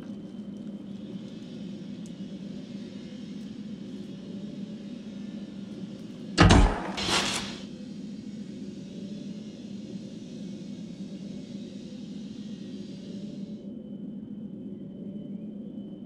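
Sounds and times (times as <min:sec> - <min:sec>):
steady low hum: 0:00.0 - 0:16.0
loud impact: 0:06.4 - 0:07.6.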